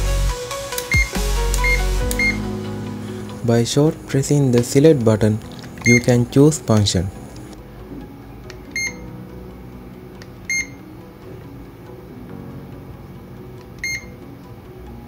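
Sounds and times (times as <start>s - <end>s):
soft background music: 0.0s - 15.0s
clamp meter buzzer beeps: 8.8s - 9.0s, 10.5s - 10.8s, 13.8s - 14.1s.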